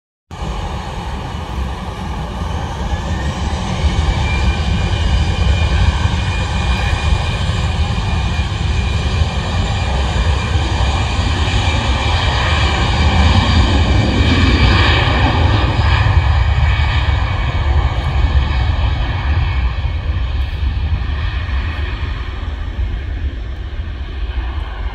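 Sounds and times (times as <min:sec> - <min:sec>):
jet engines roaring at takeoff: 0:00.3 - 0:24.9.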